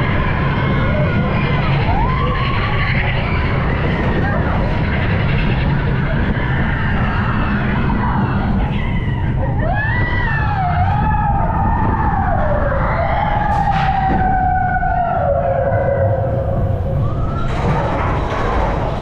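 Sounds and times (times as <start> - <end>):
roller coaster wheels rumbling: 0.0 - 19.0.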